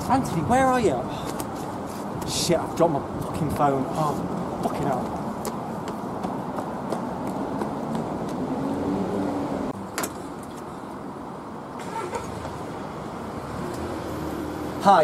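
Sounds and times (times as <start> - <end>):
city street traffic: 0.0 - 15.0
running footsteps: 5.1 - 8.6.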